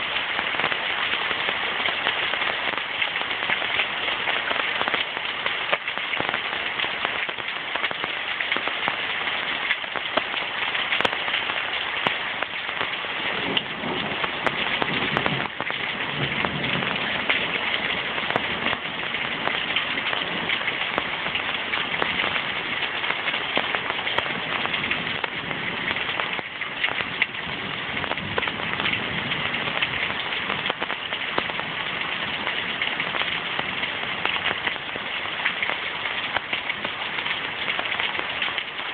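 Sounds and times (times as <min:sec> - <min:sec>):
heavy rain on trees and lake: 0:00.0 - 0:38.9.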